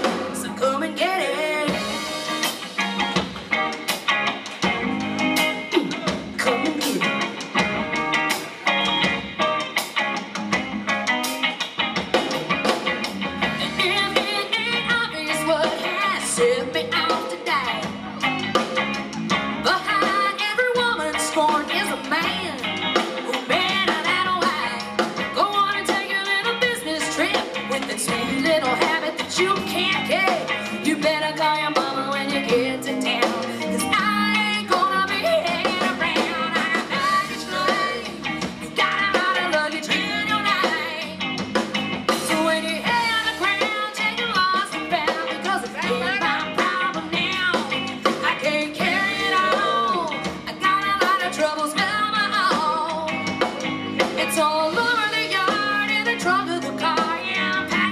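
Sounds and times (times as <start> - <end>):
woman singing: 0.0 - 2.6, 13.4 - 18.3, 19.6 - 41.4, 42.1 - 57.9
bass guitar: 0.0 - 57.9
drum kit: 0.0 - 57.9
electric guitar: 0.0 - 57.9.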